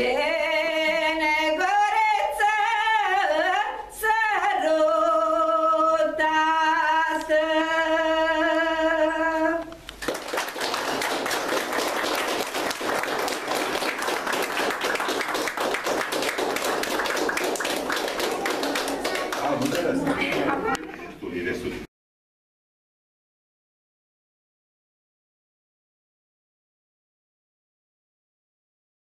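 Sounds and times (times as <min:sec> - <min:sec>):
woman singing unaccompanied: 0:00.0 - 0:09.8
audience applause: 0:10.0 - 0:20.7.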